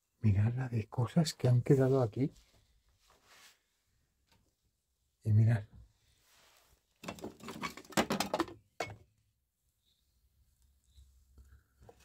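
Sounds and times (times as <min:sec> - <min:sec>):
loose objects clattering: 0:07.0 - 0:09.0.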